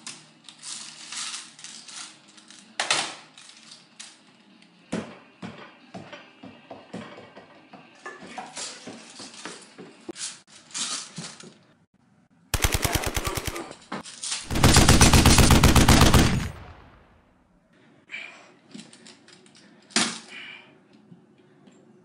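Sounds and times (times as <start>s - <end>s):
automatic gunfire bursts: 12.6s - 13.8s, 14.5s - 17.1s.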